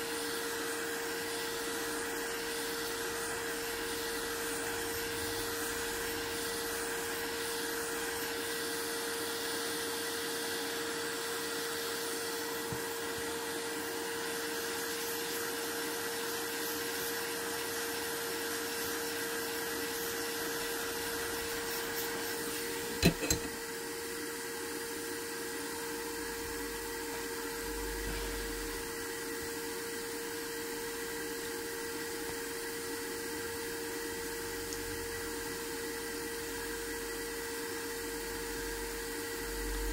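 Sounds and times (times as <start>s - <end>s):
fan motor whirring: 0.0s - 10.5s, 19.2s - 23.8s.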